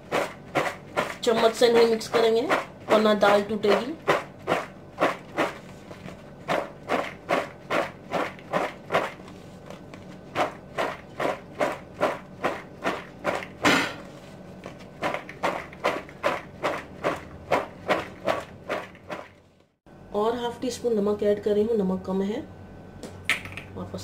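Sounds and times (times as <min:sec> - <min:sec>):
food tossed in plastic bowl: 0:00.0 - 0:13.6, 0:14.6 - 0:19.4.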